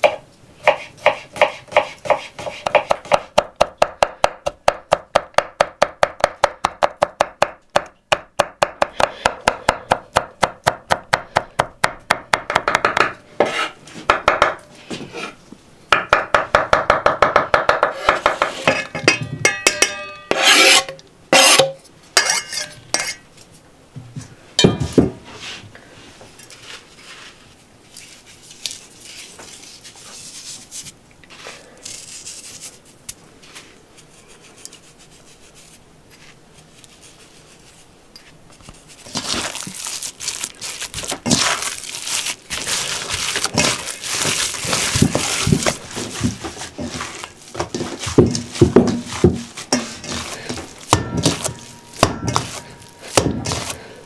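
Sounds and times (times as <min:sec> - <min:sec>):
knife chopping on wooden board: 0:00.0 - 0:14.6, 0:47.6 - 0:53.8
blade scraping across board: 0:13.4 - 0:13.8, 0:20.3 - 0:23.2
quiet rubbing and handling: 0:25.1 - 0:39.6, 0:41.4 - 0:54.0.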